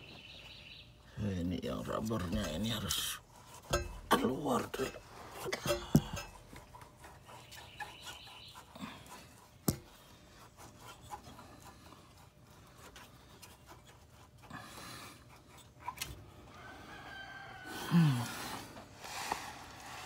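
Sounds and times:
rubber and metal scraping: 1.9s - 14.4s.

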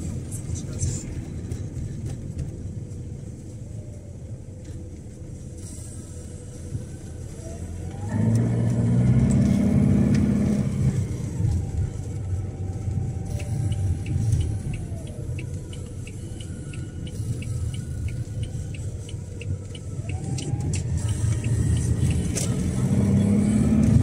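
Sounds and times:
road noise: 0.0s - 24.0s
vehicle engine: 0.0s - 24.0s
light regular ticking: 12.2s - 24.0s.

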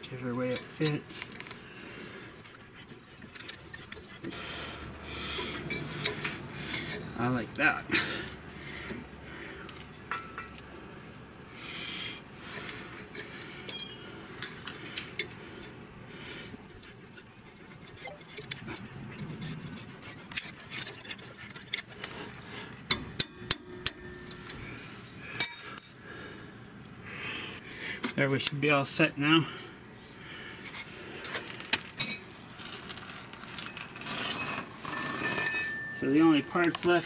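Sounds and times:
ringing metal clink: 25.4s - 26.0s, 33.7s - 36.9s.

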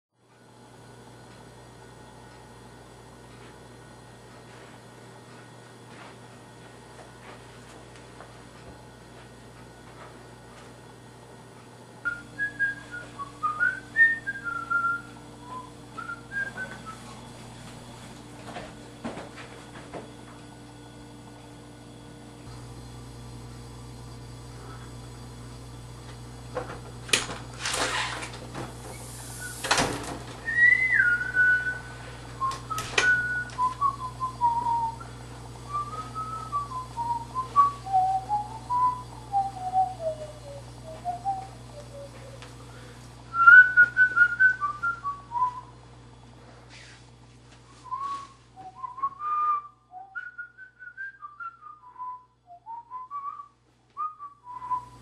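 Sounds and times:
person whistling a tune: 12.0s - 17.1s, 30.4s - 35.1s, 35.7s - 42.4s, 43.3s - 45.7s, 47.8s - 55.0s.

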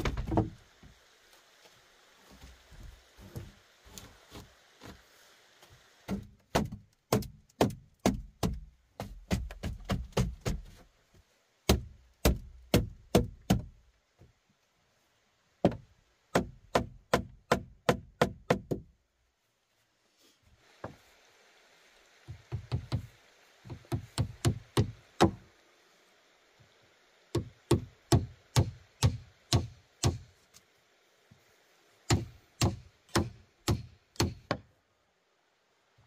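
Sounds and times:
hand tool knocking on wood: 6.1s - 10.7s, 22.3s - 23.1s, 23.7s - 25.4s.

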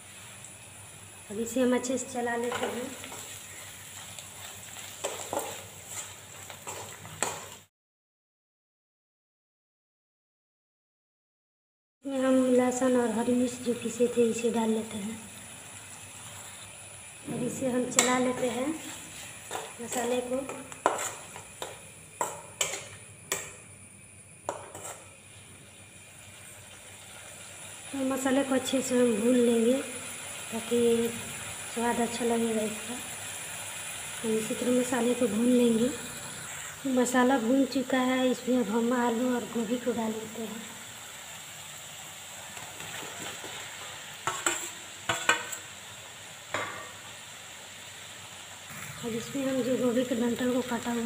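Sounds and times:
oil frying with a hiss: 0.0s - 7.7s, 12.0s - 51.0s
metal spatula scraping a pan: 2.4s - 7.6s, 17.9s - 23.4s, 24.5s - 25.1s, 44.2s - 45.6s.

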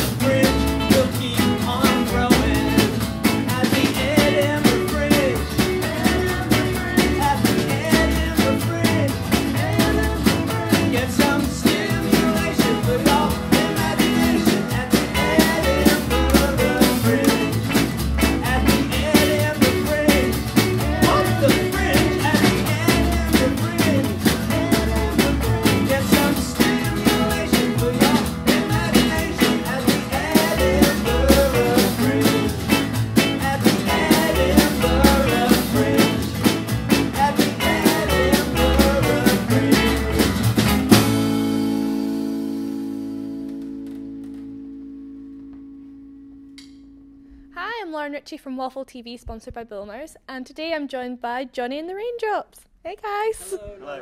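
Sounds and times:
man singing: 0.0s - 40.4s
rockabilly band playing: 0.0s - 45.8s.

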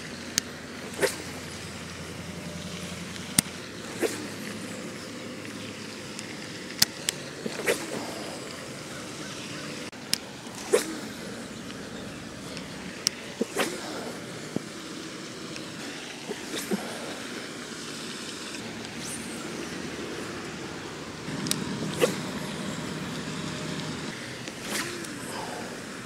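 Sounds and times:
outdoor background noise: 0.0s - 26.0s.

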